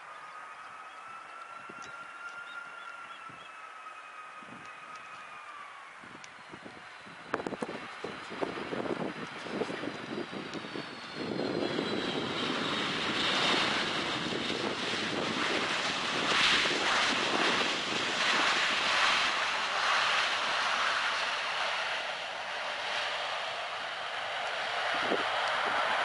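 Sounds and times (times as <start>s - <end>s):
faint falling whine: 0.0s - 26.0s
jet airliner engines: 0.0s - 26.0s.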